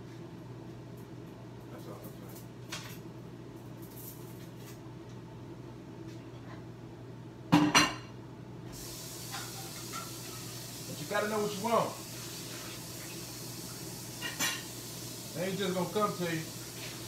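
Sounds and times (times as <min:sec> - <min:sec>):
water tap running: 0:08.8 - 0:17.0
dishes and utensils clinking: 0:09.3 - 0:10.6, 0:14.2 - 0:14.7.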